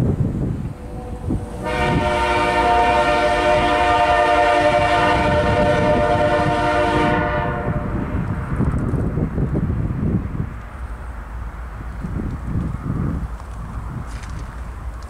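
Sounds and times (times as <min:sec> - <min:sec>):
freight train rumbling: 0:00.0 - 0:15.0
locomotive air horn blast: 0:00.7 - 0:08.3.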